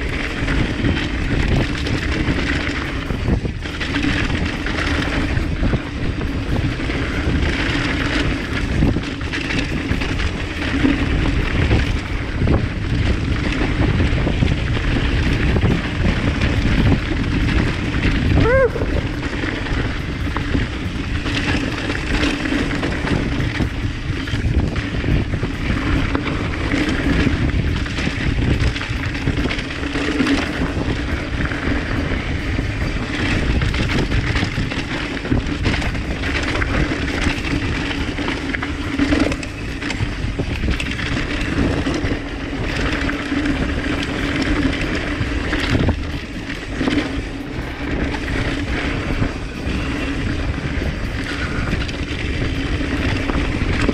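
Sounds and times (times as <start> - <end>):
bike rattling over bumps: 0.0 - 53.9
tyres rolling on dirt: 0.0 - 53.9
wind rushing over microphone: 0.0 - 53.9.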